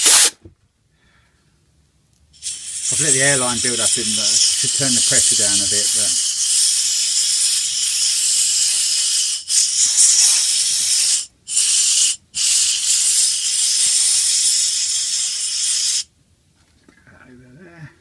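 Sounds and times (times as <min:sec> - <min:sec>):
compressed air blow gun hissing: 0:00.0 - 0:00.4, 0:02.4 - 0:16.1.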